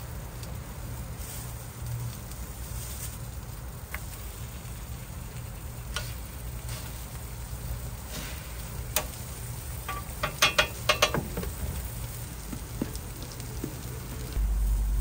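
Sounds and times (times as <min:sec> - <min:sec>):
food sizzling on a griddle: 0:00.0 - 0:14.4
low rumble: 0:13.8 - 0:15.0.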